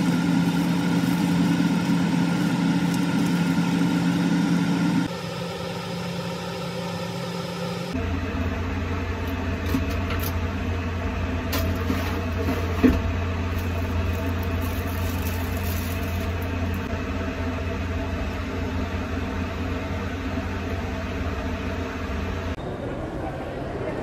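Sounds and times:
airliner cabin drone: 0.0s - 24.0s.

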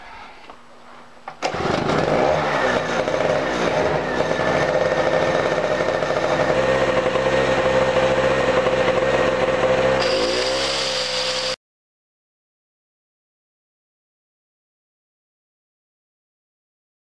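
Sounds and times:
angle grinder whine: 1.4s - 11.6s
portable generator engine running: 1.4s - 11.6s.

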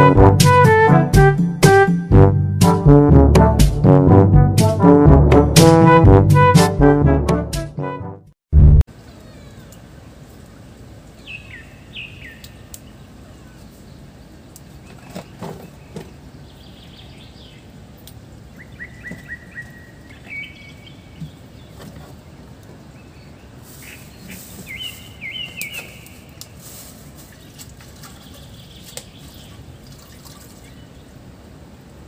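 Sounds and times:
birds chirping: 9.0s - 31.3s.

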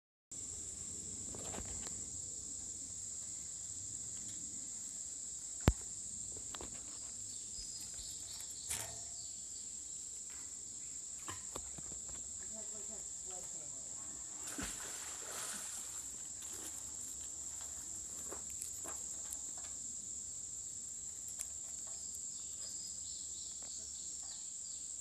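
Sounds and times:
high-pitched insect chorus: 0.4s - 25.0s.

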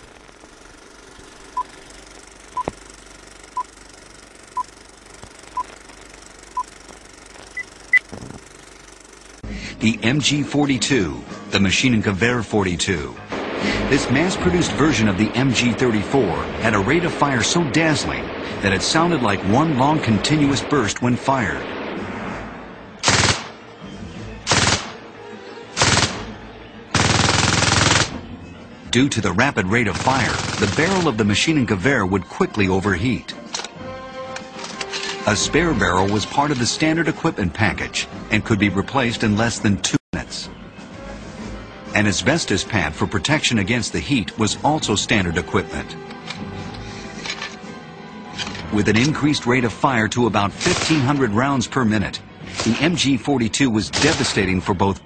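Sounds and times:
machine gun firing bursts: 23.0s - 23.6s, 24.5s - 25.0s, 25.8s - 26.3s, 26.9s - 28.2s, 29.8s - 31.3s, 50.6s - 51.3s, 52.5s - 53.0s, 54.0s - 54.5s.

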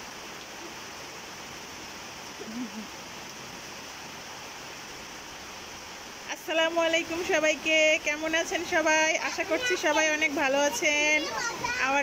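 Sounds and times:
steady rain falling: 0.0s - 12.0s
child's voice: 9.3s - 12.0s.

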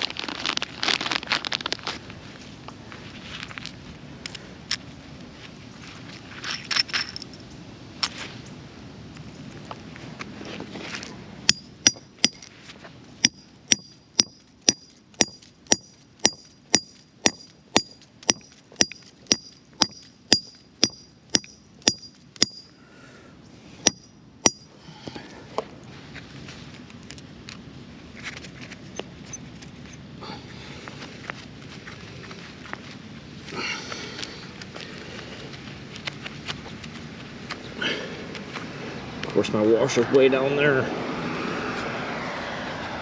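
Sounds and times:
hammer striking metal anchors: 11.5s - 12.5s, 13.2s - 22.7s, 23.8s - 24.7s.

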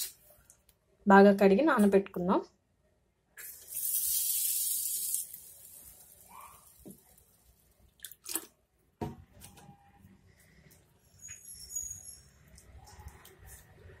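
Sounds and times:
water poured into steel bowl: 3.4s - 8.5s.

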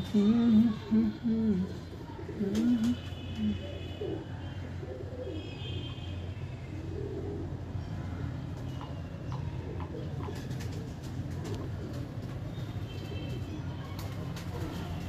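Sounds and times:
pigeons cooing: 0.0s - 5.5s, 6.8s - 7.6s, 9.4s - 12.4s.

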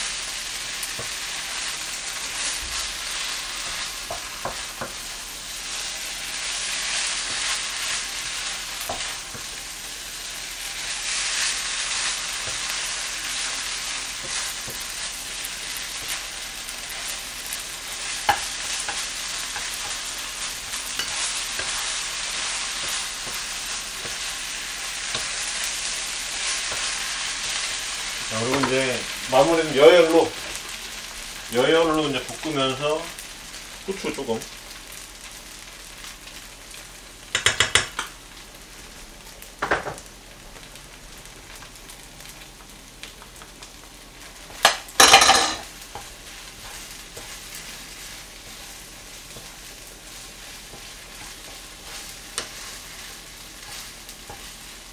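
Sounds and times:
rice sizzling in a frying pan: 0.0s - 54.9s
spatula knocking on pan: 37.3s - 38.1s, 39.6s - 40.0s.

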